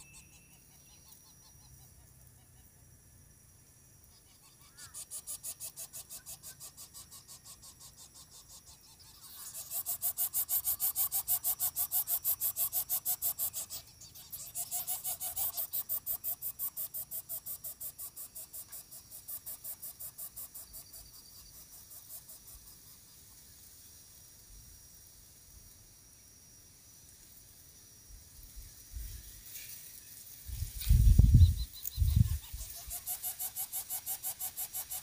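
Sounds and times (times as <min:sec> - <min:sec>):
nestlings begging with rasping hiss: 0:04.0 - 0:23.9, 0:29.0 - 0:35.0.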